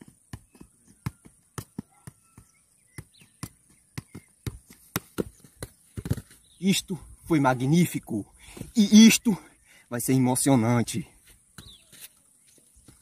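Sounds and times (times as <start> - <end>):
football thudding on feet: 0.0 - 6.5.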